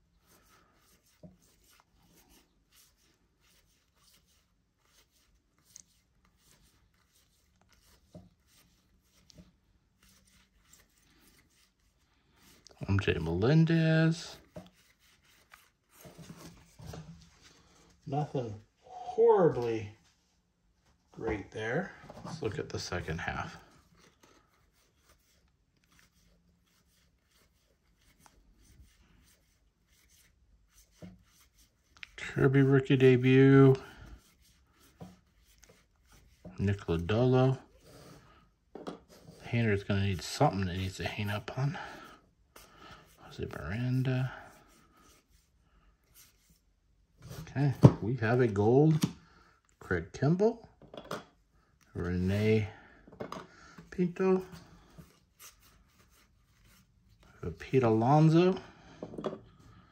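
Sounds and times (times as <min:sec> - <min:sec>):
cards sliding and rustling: 0:54.7 - 0:57.4.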